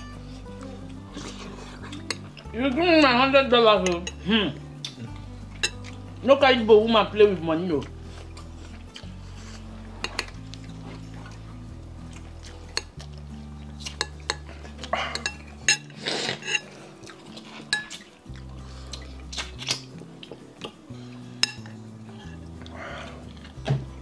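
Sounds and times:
quiet background music: 0.0 - 24.0
fork clinking on ceramic bowl: 15.1 - 16.7.

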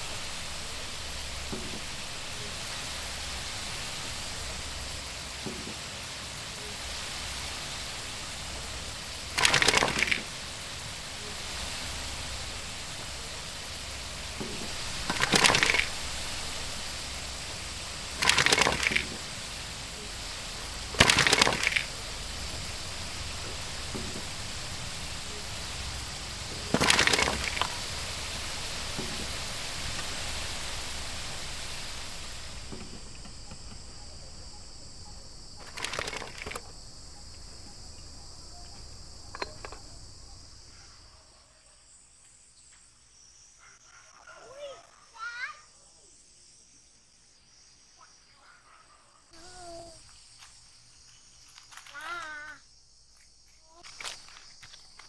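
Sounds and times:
food sizzling in hot oil: 0.0 - 40.7.

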